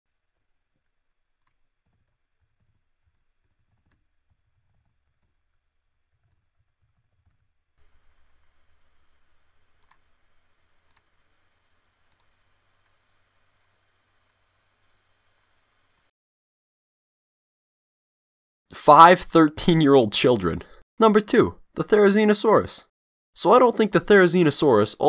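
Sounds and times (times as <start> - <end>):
keyboard typing: 1.4 - 8.3, 9.1 - 11.2.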